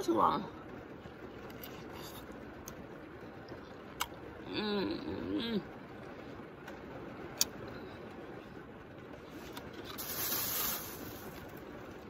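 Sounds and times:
plastic bag rustling: 9.4 - 11.6.

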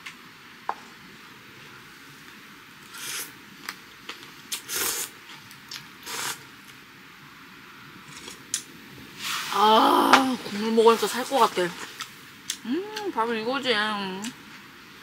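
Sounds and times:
person slurping noodles: 2.9 - 3.3, 4.5 - 5.2, 6.0 - 6.4.

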